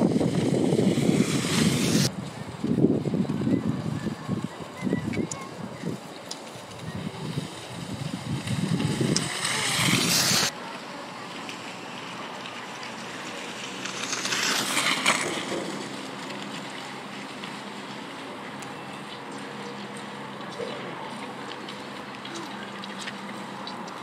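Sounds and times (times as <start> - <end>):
skis swishing on snow: 0.0 - 2.6, 6.0 - 18.6
outdoor hiss: 8.9 - 11.0, 13.0 - 16.2.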